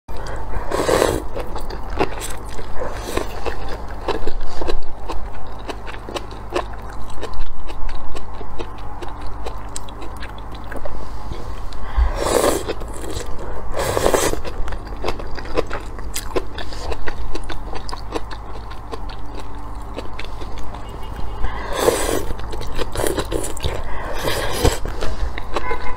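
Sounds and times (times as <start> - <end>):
wet chewing: 0.1 - 25.9
noodles slurped: 0.2 - 4.8, 12.0 - 20.7, 21.5 - 25.7.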